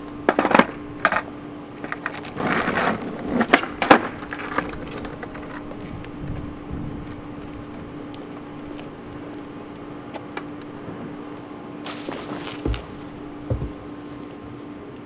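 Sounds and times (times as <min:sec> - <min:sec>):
low hum: 0:00.0 - 0:14.8
rustle: 0:01.8 - 0:13.2
footsteps on asphalt: 0:11.9 - 0:13.9.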